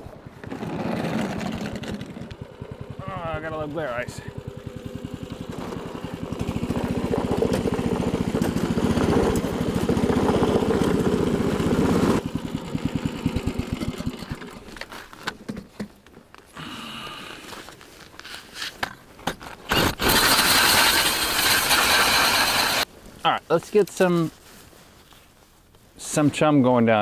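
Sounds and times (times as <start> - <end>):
small gas engine running: 0.3 - 14.9, 16.6 - 17.7, 19.7 - 22.9.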